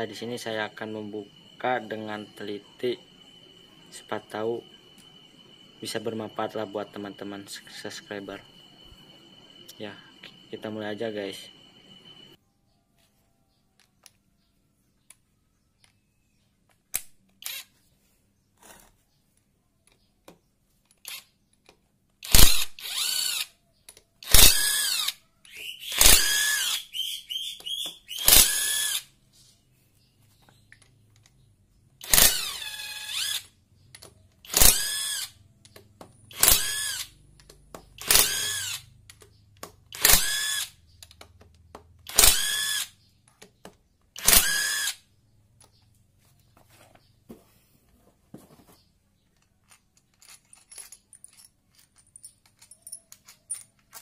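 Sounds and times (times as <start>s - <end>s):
electric drill whirring: 22.2s - 23.5s, 24.2s - 25.2s, 25.8s - 26.9s, 28.1s - 29.1s, 32.0s - 33.5s, 34.4s - 35.4s, 36.3s - 37.2s, 38.0s - 38.9s, 39.9s - 40.8s, 42.1s - 42.9s, 44.2s - 45.0s.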